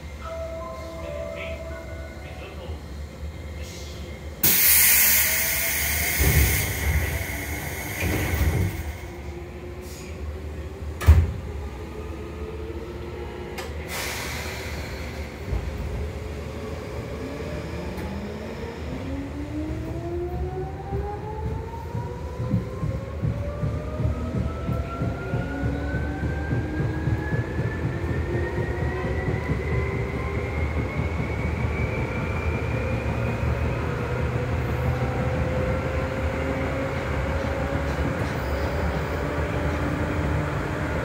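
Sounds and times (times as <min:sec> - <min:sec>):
air hiss of train doors: 0:03.6 - 0:09.1, 0:09.8 - 0:10.2, 0:13.6 - 0:15.9.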